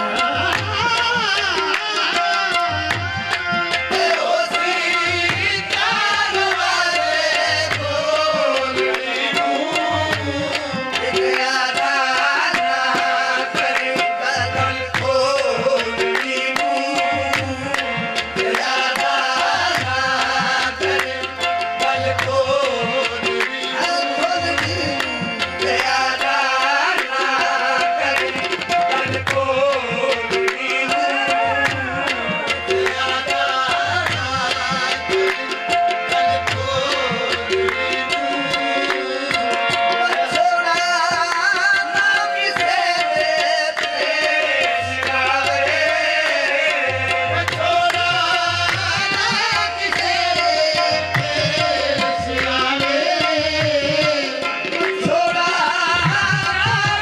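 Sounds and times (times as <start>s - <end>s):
tabla beat: 0.0s - 57.0s.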